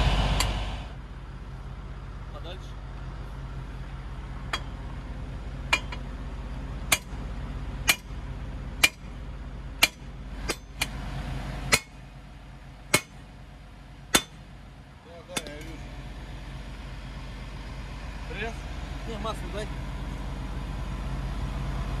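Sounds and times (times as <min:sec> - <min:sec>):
low engine hum: 0:00.0 - 0:22.0
sledgehammer striking steel: 0:05.7 - 0:06.0, 0:06.9 - 0:07.2, 0:07.8 - 0:08.2, 0:08.8 - 0:09.2, 0:09.8 - 0:11.0, 0:11.7 - 0:12.1, 0:12.9 - 0:13.3, 0:14.1 - 0:14.5.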